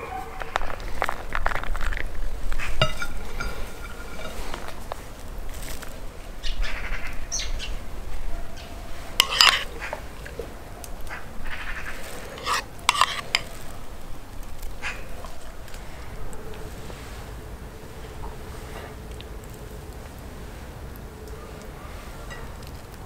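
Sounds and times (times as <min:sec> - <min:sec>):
spoon scraping and clinking in bowl: 0:02.6 - 0:05.1, 0:09.2 - 0:09.7, 0:12.0 - 0:13.7.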